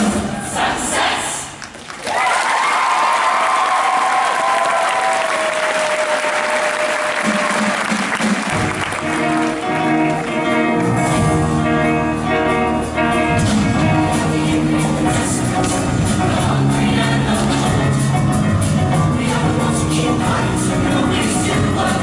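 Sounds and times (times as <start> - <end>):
audience applause: 1.6 - 10.3
instrumental music with bass: 8.5 - 22.0.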